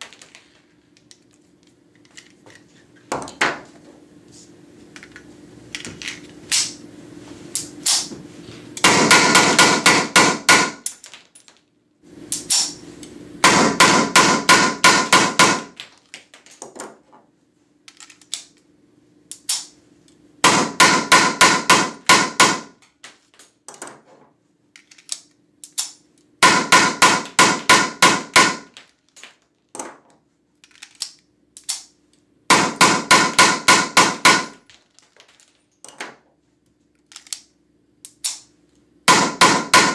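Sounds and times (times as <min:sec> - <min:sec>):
blank gun firing rapid shots: 0:08.8 - 0:10.8, 0:13.4 - 0:15.7, 0:20.5 - 0:22.7, 0:32.5 - 0:34.6, 0:39.1 - 0:39.9.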